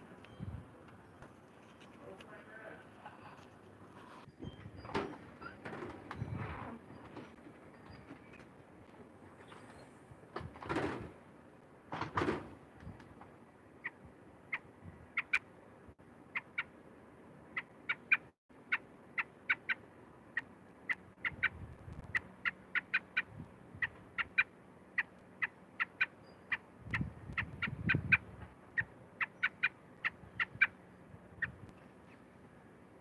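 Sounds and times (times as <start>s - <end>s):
bird giving sharp calls: 22.1s - 30.8s.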